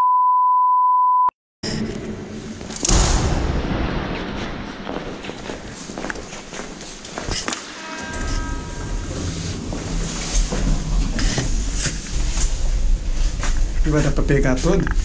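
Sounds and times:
elevator running rumble: 8.0 - 15.0.

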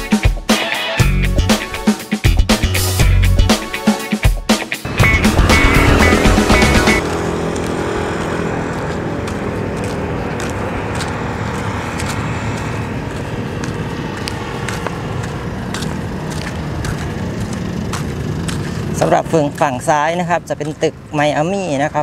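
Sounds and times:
wind rumble on microphone: 4.9 - 20.0
footsteps on pavement: 4.9 - 21.9.

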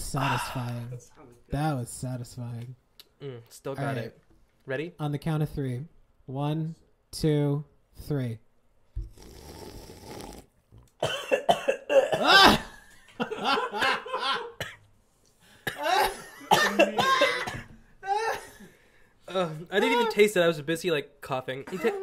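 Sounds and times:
person coughing: 11.0 - 12.8, 14.6 - 14.8, 15.6 - 18.4
laughter: 12.4 - 14.6.

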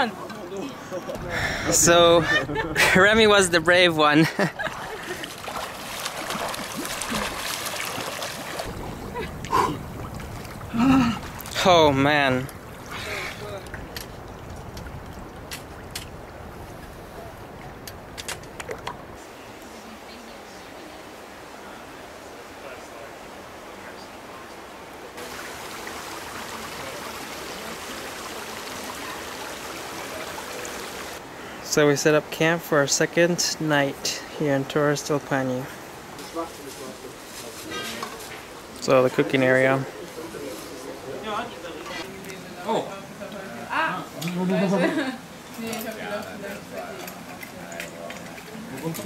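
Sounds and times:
stream water rushing: 0.0 - 37.1
water splashing from swimming strokes: 4.6 - 11.6.

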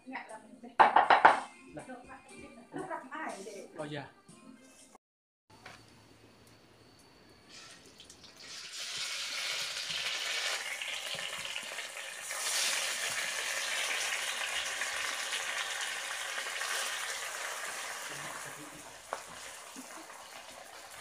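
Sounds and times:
fish sizzling in hot oil: 7.4 - 21.0.

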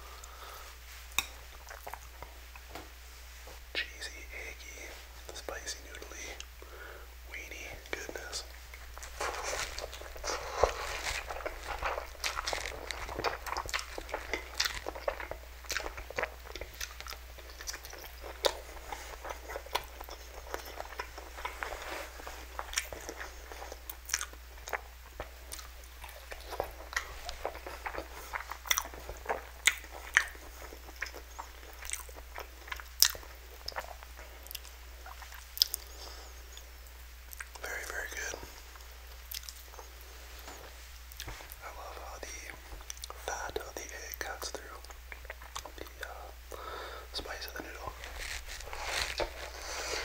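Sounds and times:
person chewing and smacking: 1.2 - 2.7, 7.8 - 50.0.

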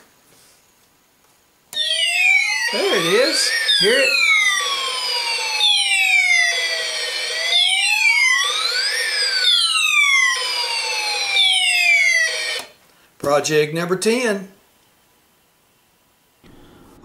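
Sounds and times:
electronic siren tone: 1.8 - 12.8.

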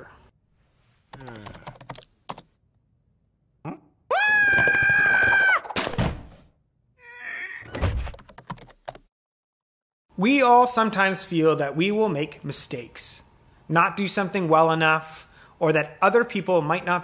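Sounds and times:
cartoon high-pitched scream: 4.1 - 5.8, 7.0 - 7.7.

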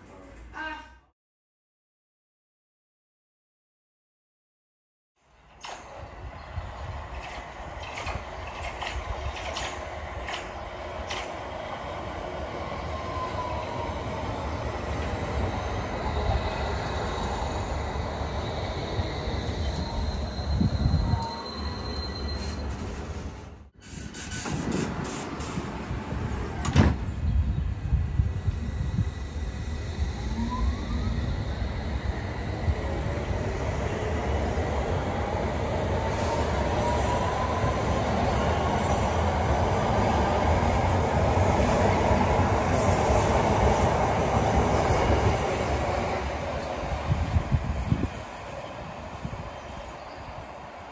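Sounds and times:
wheels rumbling on rails: 5.4 - 12.8
train wheels rumbling on rails: 5.4 - 50.9
high brake squeals: 15.6 - 23.2
train motor whine rising: 28.3 - 34.2.

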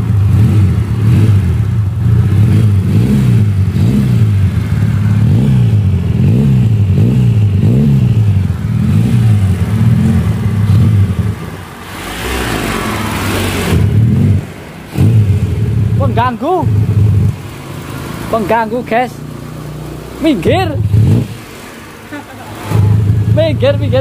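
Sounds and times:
loud rushing noise: 0.0 - 16.0
motorcycle engine revving: 0.0 - 24.0.

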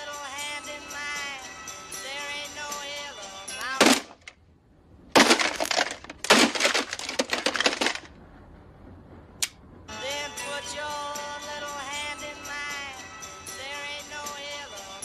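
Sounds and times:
music with singing: 0.0 - 4.1, 9.9 - 15.0
radio being smashed: 3.8 - 4.3, 5.2 - 8.1
sharp crash: 5.2 - 8.1.

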